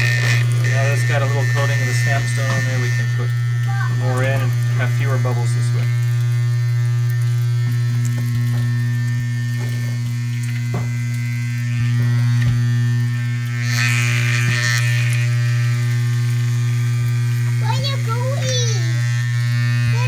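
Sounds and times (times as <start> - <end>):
vibrator humming: 0.0 - 20.0.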